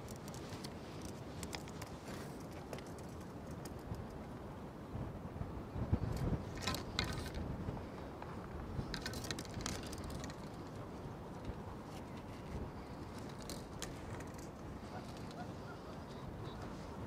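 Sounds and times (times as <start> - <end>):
fishing tackle clicks and rustles: 0.0 - 4.2, 6.1 - 15.4.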